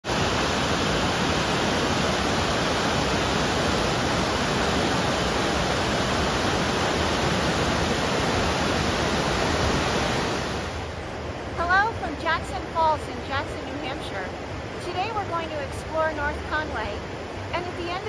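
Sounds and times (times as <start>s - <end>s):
river rapids rushing: 0.1s - 13.8s.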